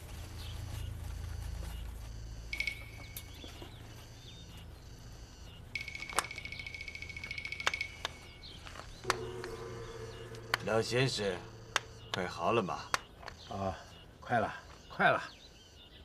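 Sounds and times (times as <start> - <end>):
bird trilling: 5.8 - 14.2.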